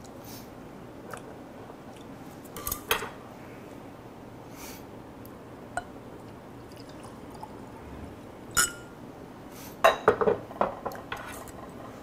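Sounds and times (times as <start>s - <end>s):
whisky pouring into glass: 6.6s - 7.8s.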